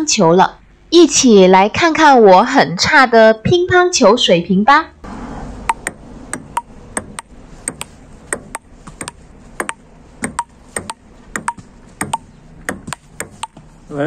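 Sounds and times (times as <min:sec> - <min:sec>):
table tennis ball clicking: 0:05.6 - 0:13.6.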